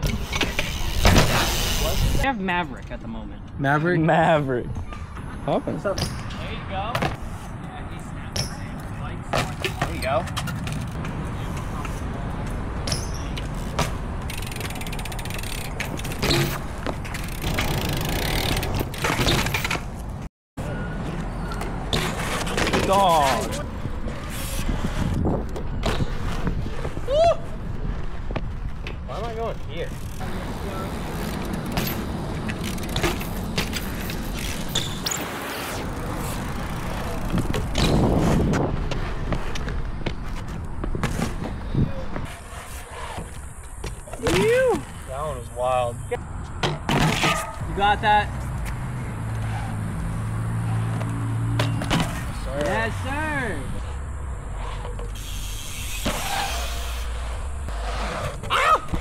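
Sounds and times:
bike tyres rolling on concrete: 0:00.0 - 0:20.3, 0:21.0 - 0:59.0
bike clicks and knocks: 0:08.3 - 0:20.2, 0:28.3 - 0:35.2, 0:36.2 - 0:42.5, 0:50.9 - 0:52.9.

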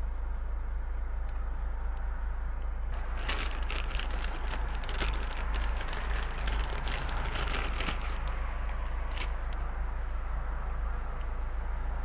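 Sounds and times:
handling rustles and clicks: 0:03.0 - 0:09.7.

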